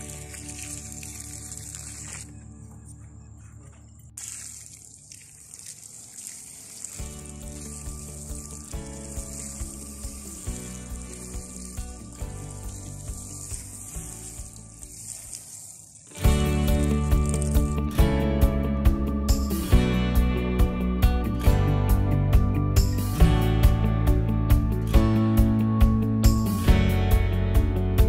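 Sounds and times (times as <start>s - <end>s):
water pouring onto soil: 0.0s - 2.4s, 4.2s - 18.0s
background music: 0.0s - 4.2s, 7.0s - 15.1s, 16.2s - 28.0s.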